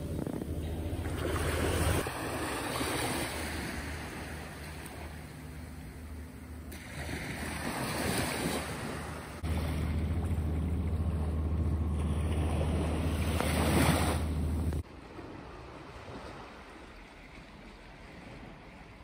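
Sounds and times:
wind rumble on microphone: 0.0s - 19.0s
small waves washing on sand: 1.0s - 5.2s, 6.7s - 10.0s.

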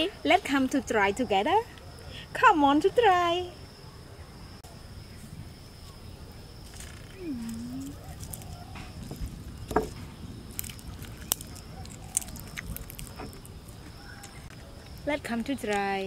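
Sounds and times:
fried food crackling: 6.6s - 16.0s
low voice humming: 7.2s - 8.0s.

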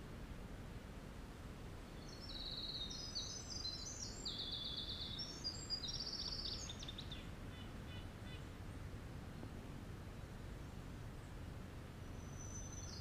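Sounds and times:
faint background hiss: 0.0s - 13.0s
wren singing rapid trills: 2.0s - 8.0s, 12.2s - 13.0s.

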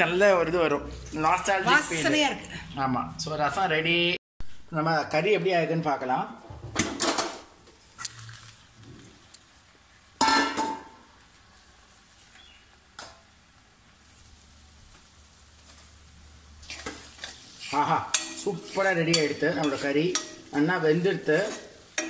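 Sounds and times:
metal lid clattering: 10.2s - 11.0s.

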